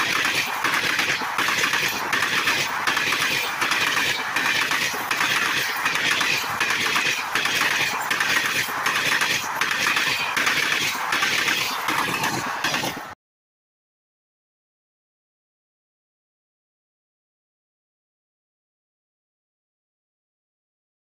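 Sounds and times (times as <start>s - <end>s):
train wheels rushing on rail: 0.0s - 13.2s.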